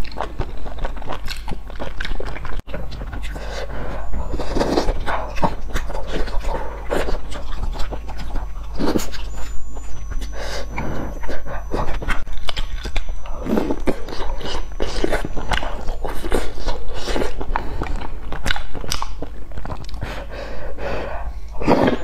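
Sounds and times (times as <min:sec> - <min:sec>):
person chewing: 0:00.0 - 0:22.0.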